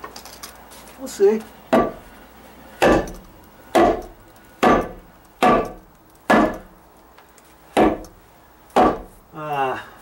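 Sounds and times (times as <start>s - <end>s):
hammer striking wooden stud: 1.7s - 2.0s, 2.8s - 6.7s, 7.8s - 8.2s, 8.8s - 9.2s.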